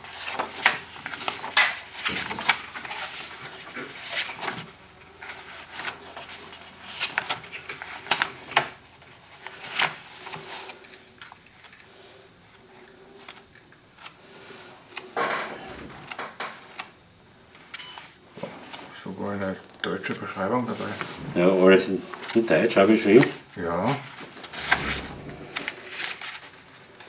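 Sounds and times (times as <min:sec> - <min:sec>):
paper pages rustling: 0:00.0 - 0:11.8, 0:23.9 - 0:26.8.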